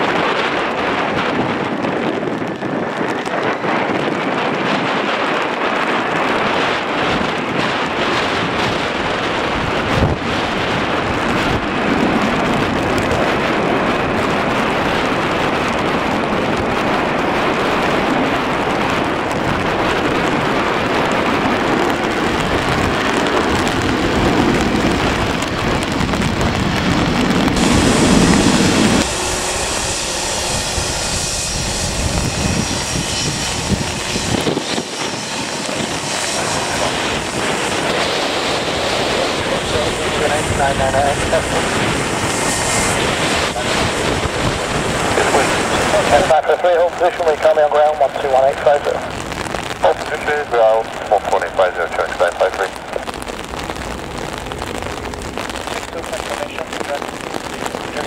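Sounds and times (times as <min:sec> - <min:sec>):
jet engine rumble: 0:00.0 - 0:58.0
wind buffeting microphone: 0:00.0 - 0:58.0
rain drumming on umbrella: 0:15.0 - 0:29.1, 0:48.4 - 0:58.0.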